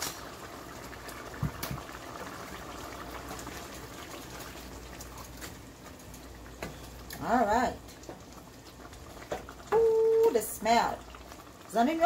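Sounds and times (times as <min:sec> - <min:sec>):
broth simmering and bubbling: 0:00.0 - 0:12.0.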